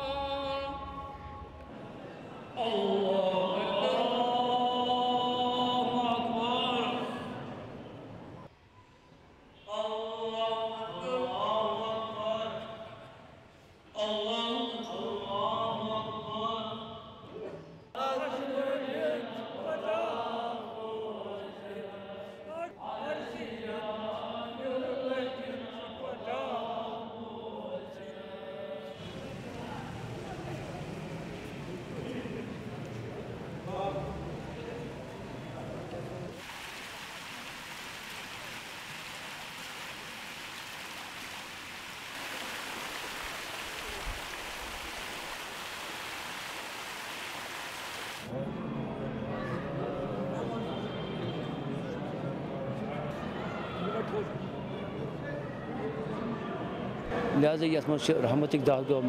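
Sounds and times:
fountain water splashing into pool: 29.0s - 33.4s, 36.1s - 48.3s.

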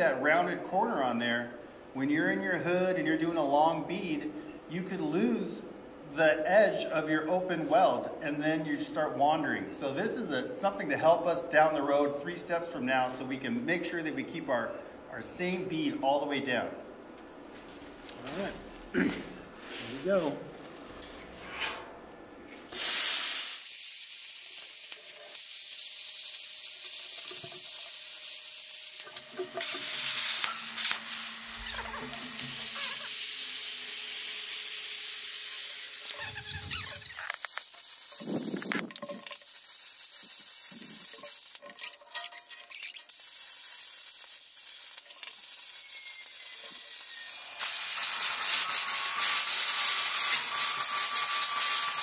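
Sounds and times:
plasma cutter hissing: 22.7s - 41.6s, 43.1s - 52.0s.

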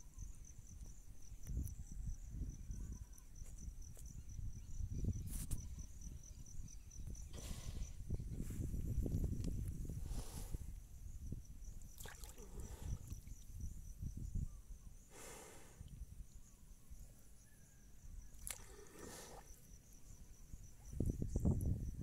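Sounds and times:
cricket trilling: 0.0s - 22.0s
water buffalo breathing out: 7.3s - 8.1s, 9.9s - 10.7s, 12.4s - 13.2s, 15.1s - 15.9s, 18.5s - 19.6s.

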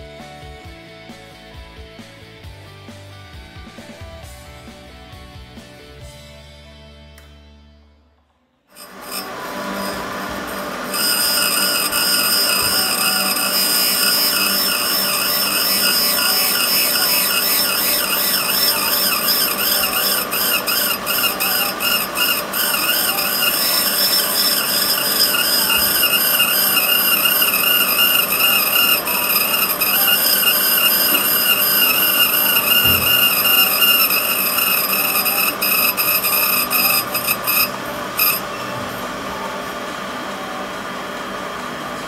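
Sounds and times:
valve grinding machine whirring: 8.8s - 41.5s.

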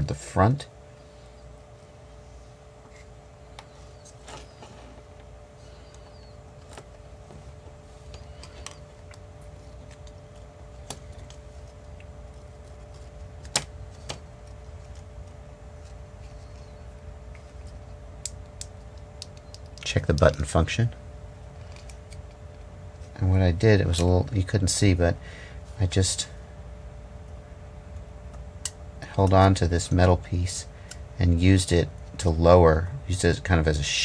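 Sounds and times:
low background hum: 0.0s - 34.0s.

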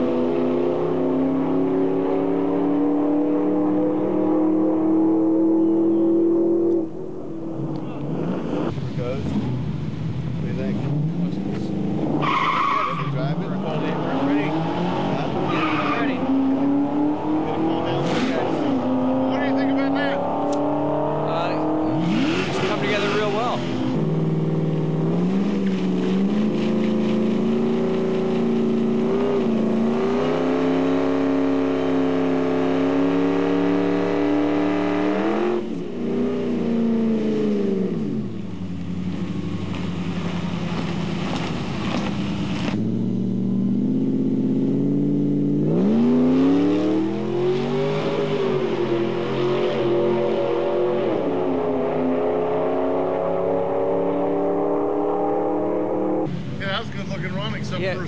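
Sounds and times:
truck engine revving: 10.5s - 56.3s.

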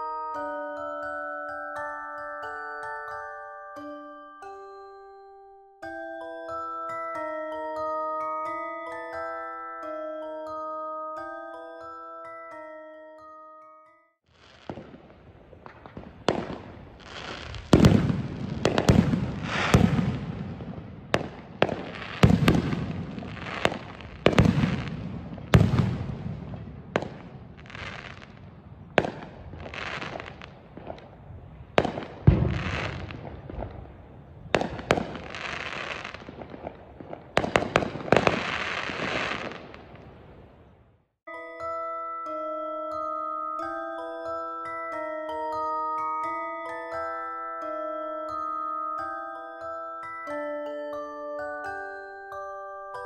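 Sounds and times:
fireworks crackling: 14.3s - 40.6s
fireworks booming: 14.4s - 40.8s.

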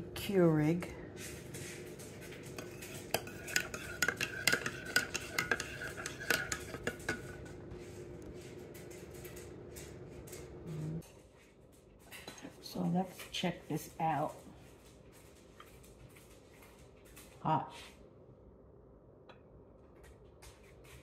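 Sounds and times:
spoon clinking in a mug: 2.6s - 7.4s.

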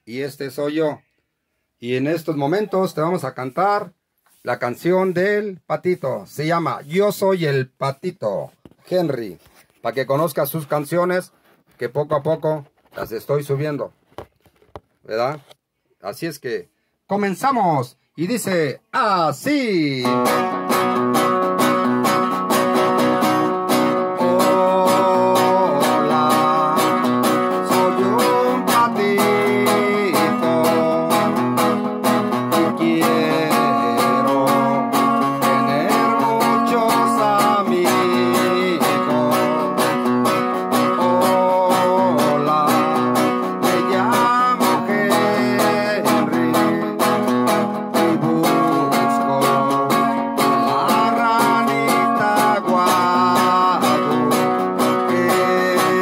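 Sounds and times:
man singing: 19.9s - 56.0s
classical guitar strumming: 20.0s - 56.0s.

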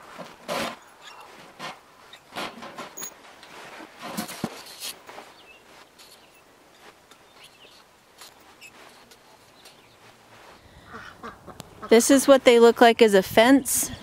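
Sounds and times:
wire panels knocking and rustling: 0.0s - 5.1s.

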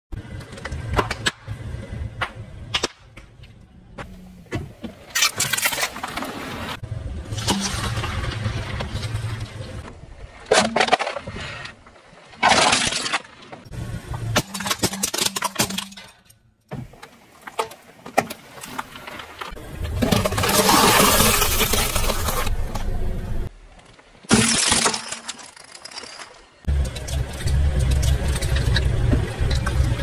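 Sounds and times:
plastic breaking with sharp cracks: 14.4s - 16.3s, 24.2s - 26.3s.

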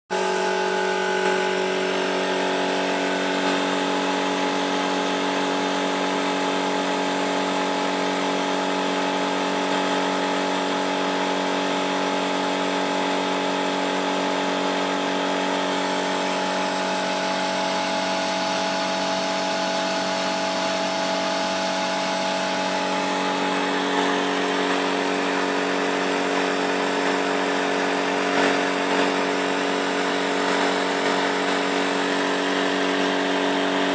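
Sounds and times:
model jet engine whine: 0.1s - 5.0s, 15.7s - 33.9s.

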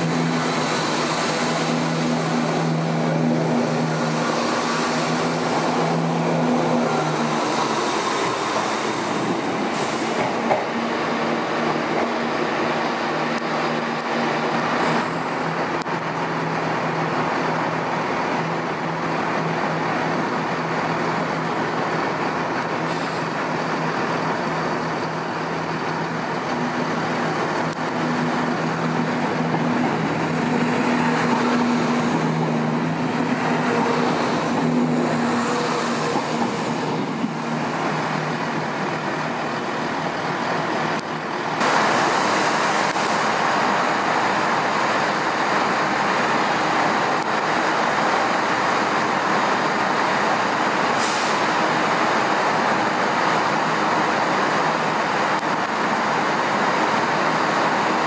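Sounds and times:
diesel train engine hum: 0.0s - 58.0s
train rumble: 0.0s - 58.0s.

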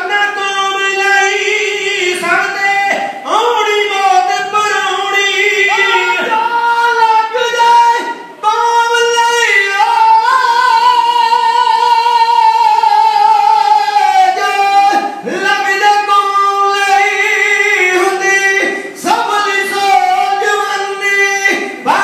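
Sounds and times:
man singing unaccompanied: 0.0s - 22.0s.

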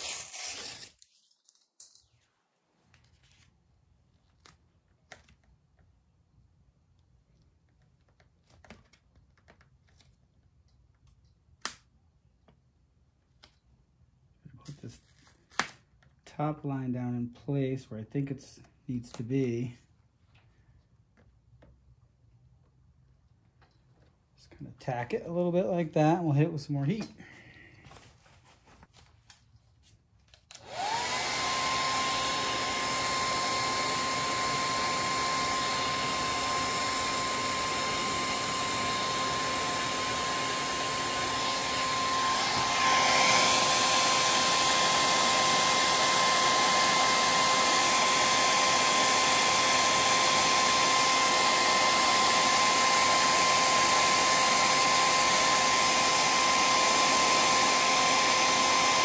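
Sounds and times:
heat gun fan rushing: 30.5s - 59.0s.

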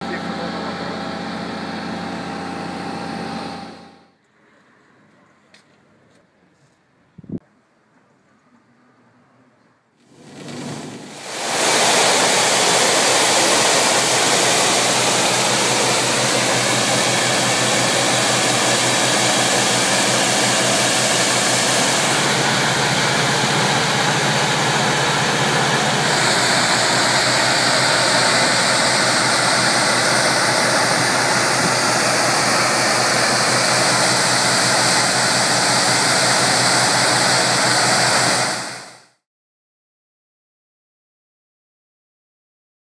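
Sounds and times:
fire pump engine running: 0.0s - 4.1s, 10.2s - 39.2s
hiss of water jetting from hose: 10.4s - 38.8s.

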